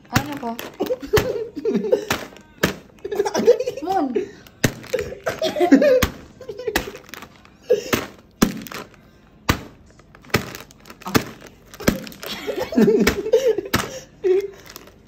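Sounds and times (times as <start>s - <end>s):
laughter: 0.9s - 2.1s, 3.0s - 4.3s, 5.0s - 6.9s, 12.3s - 14.5s
tapping on snack bag: 4.5s - 15.0s.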